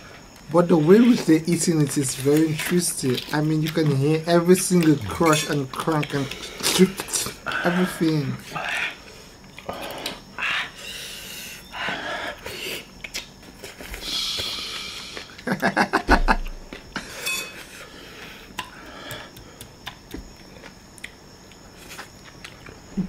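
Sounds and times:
hissing breaths and sniffs: 6.0s - 15.4s, 17.0s - 19.9s
people laughing: 15.4s - 16.4s.

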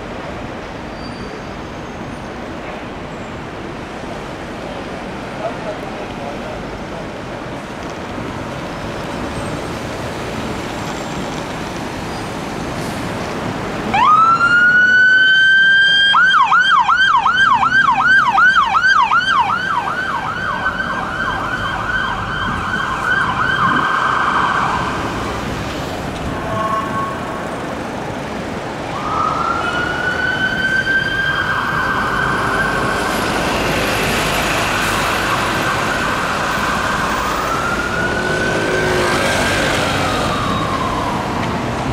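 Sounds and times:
city traffic noise: 0.0s - 41.9s
fire engine siren: 13.8s - 41.9s.

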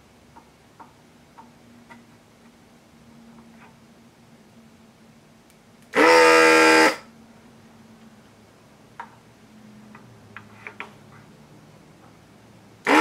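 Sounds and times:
desoldering pump buzzing: 5.8s - 7.1s.

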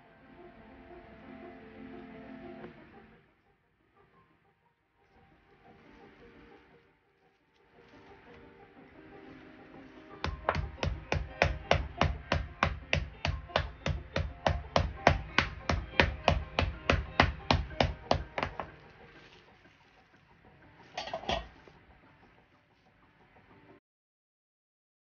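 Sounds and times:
rolling pin thudding on meat: 10.2s - 18.8s
plastic wrap rustling: 18.5s - 20.4s.

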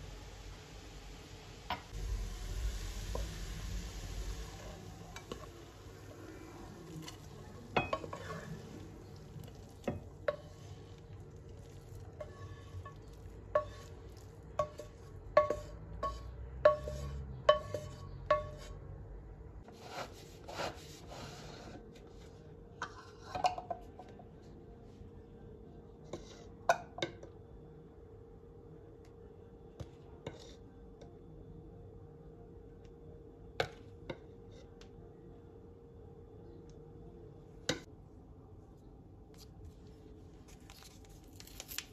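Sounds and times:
utensil scraping pan: 12.0s - 18.8s.

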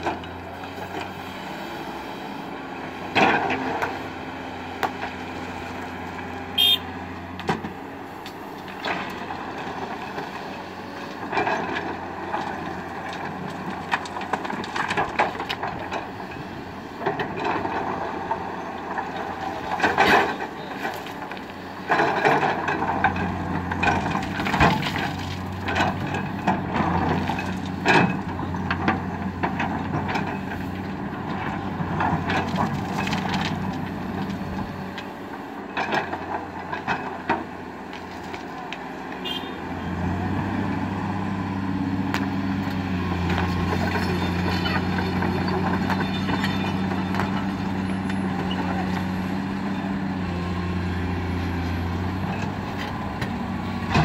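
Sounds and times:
excavator diesel engine under load: 0.0s - 54.0s
rocks clattering into steel truck bed: 19.6s - 30.7s.

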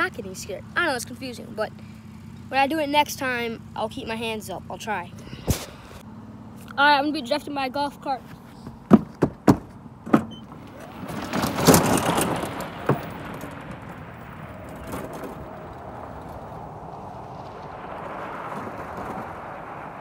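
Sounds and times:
golf cart driving: 0.0s - 20.0s
sharp knocks: 8.6s - 10.4s
tyres sliding on gravel: 10.5s - 20.0s.

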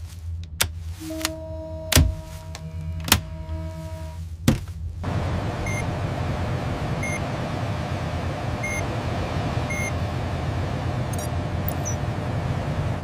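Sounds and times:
steady low hum: 0.0s - 13.0s
high electronic beeps: 5.6s - 5.8s, 8.6s - 8.8s, 9.7s - 10.0s, 11.2s - 12.0s.

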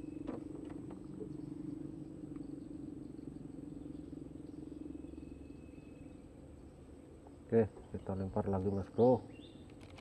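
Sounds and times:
low pulsing animal trill: 0.0s - 7.2s
faint high steady whine: 0.0s - 10.0s.

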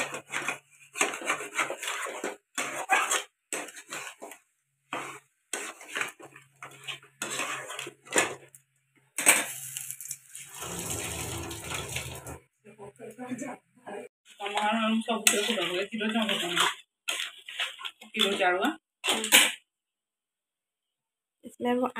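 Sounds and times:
metal spatula scraping a pan: 0.0s - 11.7s, 14.3s - 19.6s.

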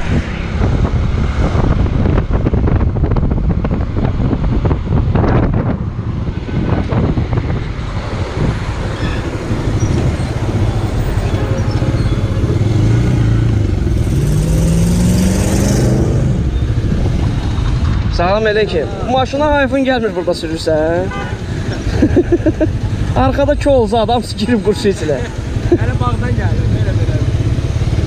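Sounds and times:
wind buffeting microphone: 0.0s - 14.2s, 15.9s - 18.2s
motorcycle engine running: 25.6s - 28.0s.

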